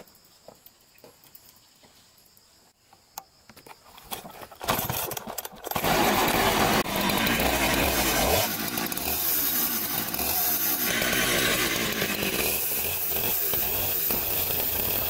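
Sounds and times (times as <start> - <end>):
chainsaw starting and running: 4.5 - 15.0.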